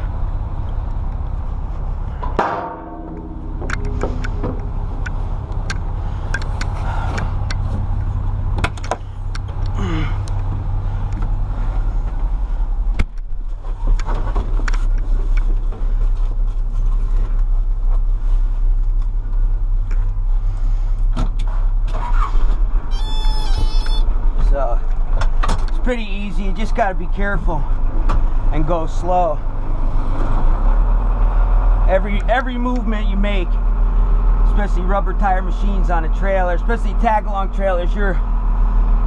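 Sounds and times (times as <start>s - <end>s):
diesel engine idling: 0.0s - 39.0s.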